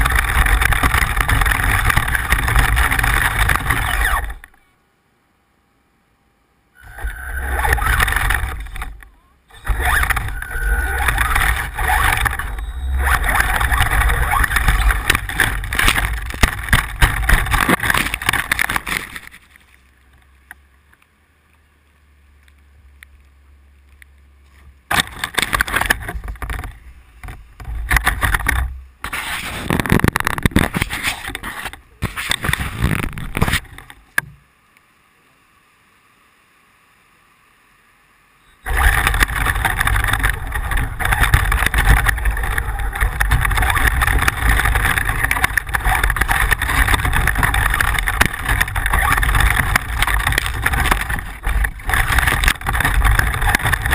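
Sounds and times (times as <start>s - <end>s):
rc car rattling over rough ground: 0.0s - 4.6s, 6.8s - 20.6s, 24.8s - 34.2s, 38.6s - 53.9s.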